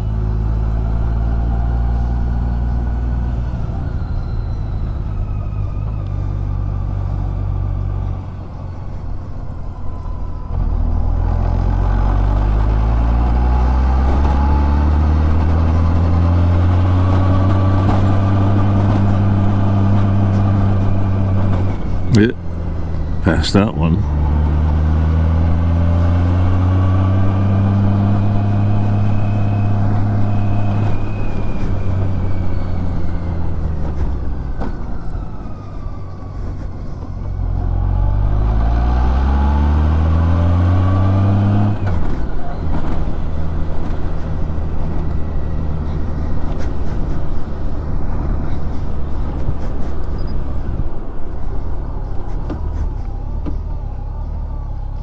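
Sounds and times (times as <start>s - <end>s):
wind and road noise: 0.0s - 55.0s
motorcycle engine: 9.8s - 23.2s, 24.0s - 34.0s.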